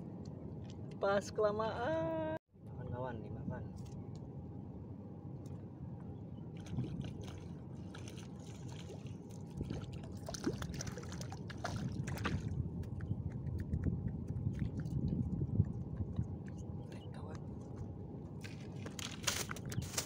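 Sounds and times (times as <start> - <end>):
low steady rumble: 0.0 - 20.0
fish splashing at surface: 6.6 - 12.5.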